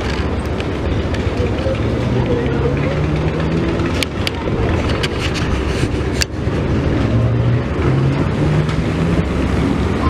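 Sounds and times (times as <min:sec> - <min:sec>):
engine rumbling: 0:00.0 - 0:10.0.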